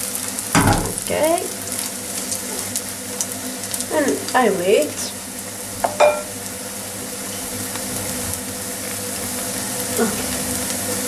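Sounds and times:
frittata sizzling in pan: 0.0 - 11.0
wooden spoon knocking pan: 0.6 - 1.2, 5.8 - 6.3.

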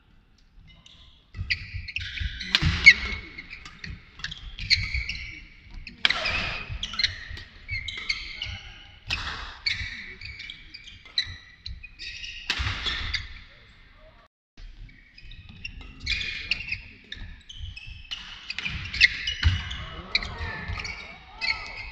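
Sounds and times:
shoes squeaking on court: 0.6 - 13.6, 14.8 - 21.9
racket hitting shuttlecock: 1.4 - 11.7, 12.3 - 13.3.

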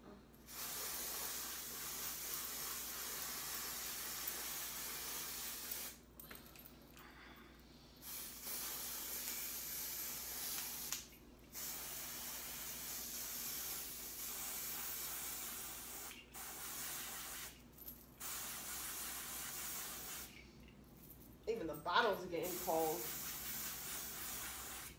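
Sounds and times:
aerosol spray hissing: 0.5 - 6.0, 8.0 - 17.6, 18.2 - 20.4, 22.4 - 24.9.

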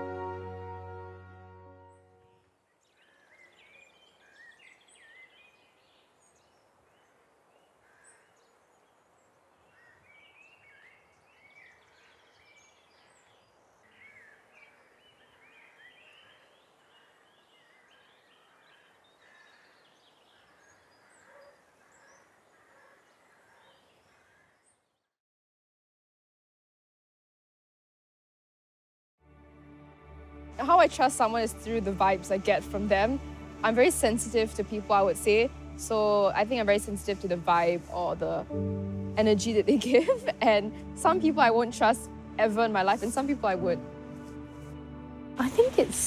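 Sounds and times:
birdsong chirps: 1.8 - 25.2.

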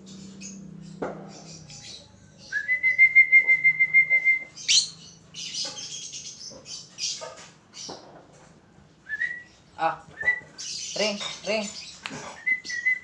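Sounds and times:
person whistling: 2.6 - 4.5
lovebird chirping: 3.7 - 8.0.

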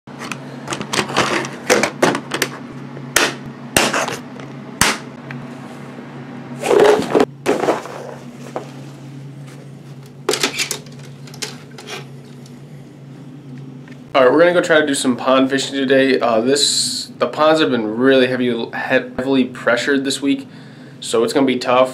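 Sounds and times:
steady low hum: 0.1 - 21.9.

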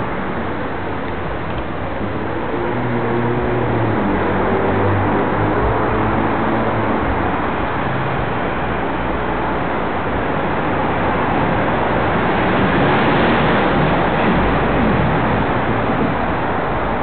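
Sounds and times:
road traffic: 0.0 - 17.0
wind rushing over microphone: 0.0 - 17.0.

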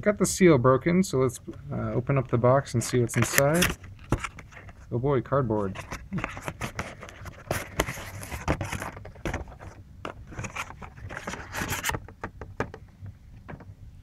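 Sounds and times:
cardboard scraping and rustling: 2.7 - 4.8, 5.6 - 12.1.

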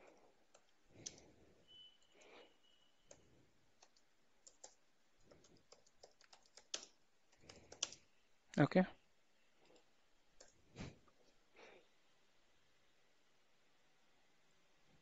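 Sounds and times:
computer keyboard typing: 0.0 - 1.4, 3.1 - 8.1.

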